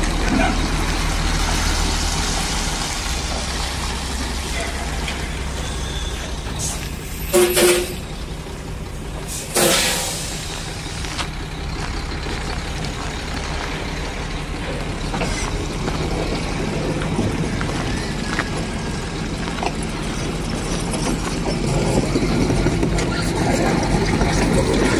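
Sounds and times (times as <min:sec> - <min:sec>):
truck diesel engine running: 0:00.0 - 0:24.9
air brakes hissing: 0:04.5 - 0:08.3, 0:09.2 - 0:10.8
loud horn blasts: 0:07.2 - 0:08.1.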